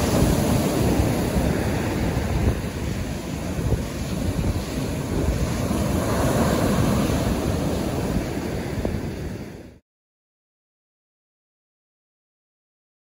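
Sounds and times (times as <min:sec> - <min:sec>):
ocean surf washing on beach: 0:00.0 - 0:09.8.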